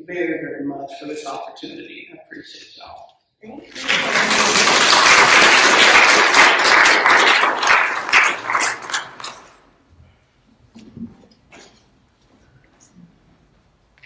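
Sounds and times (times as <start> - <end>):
congregation applauding: 3.7 - 9.6.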